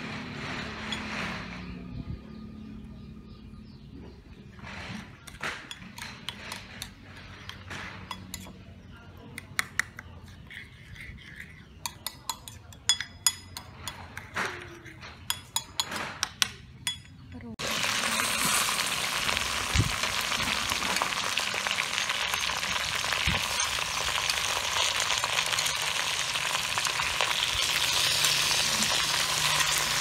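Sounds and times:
spoon clinking in ceramic bowl: 10.3s - 17.3s.

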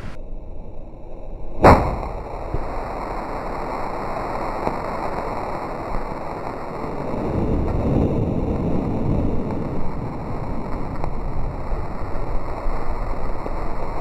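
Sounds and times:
faint pops: 1.6s - 3.1s, 4.4s - 6.7s
loud firework bang: 1.6s - 14.0s
steady hiss: 1.6s - 14.0s.

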